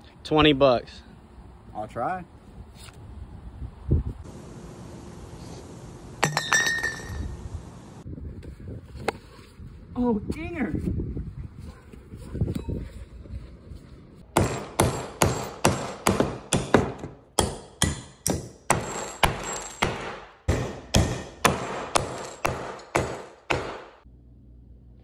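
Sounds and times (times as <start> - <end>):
glass decanter hammering nails: 6.2 - 7.3, 14.4 - 24.0.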